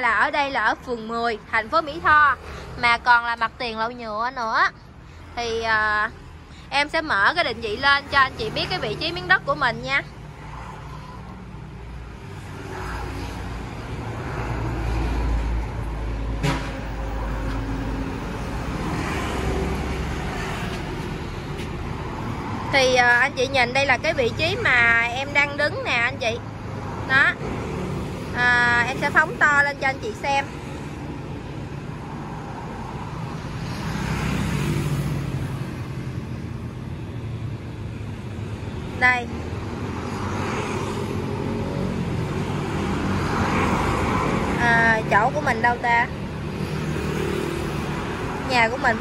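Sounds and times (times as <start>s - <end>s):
background traffic: 0.0s - 49.0s
scooters and vehicles passing: 0.0s - 49.0s.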